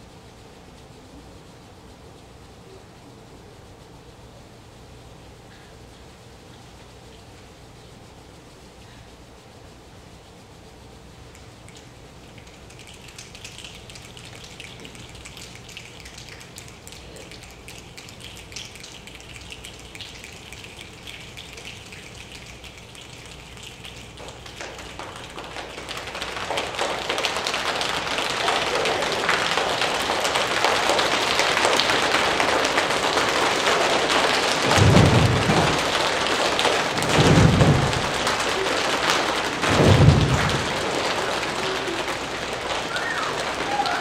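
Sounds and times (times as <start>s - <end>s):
choir imitating rain: 11.3s - 44.0s
low thunder-like thuds: 34.6s - 38.4s, 39.2s - 41.0s.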